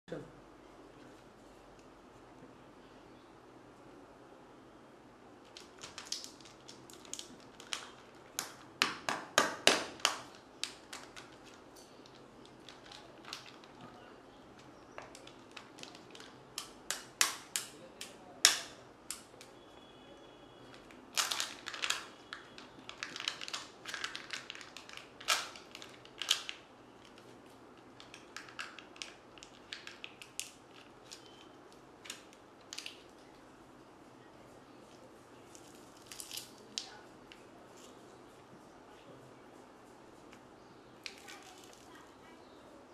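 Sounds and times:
plastic wrapper crinkling and tearing: 5.4s - 19.4s, 20.7s - 33.4s, 34.9s - 37.0s, 41.0s - 42.0s.

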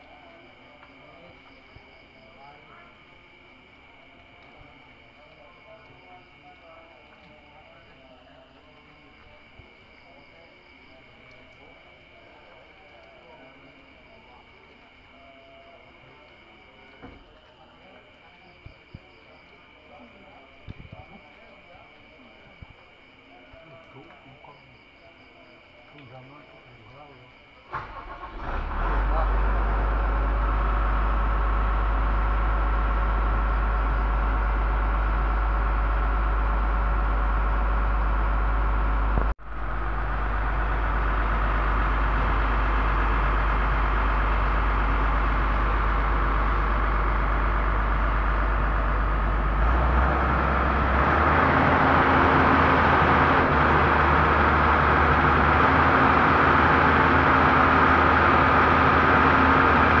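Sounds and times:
excavator diesel engine: 27.7s - 60.0s.

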